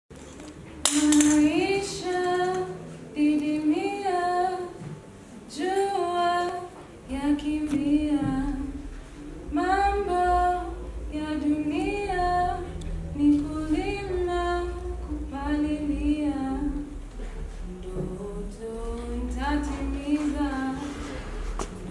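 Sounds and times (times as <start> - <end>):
woman singing unaccompanied: 0.8 - 21.2
low rumble: 7.1 - 21.9.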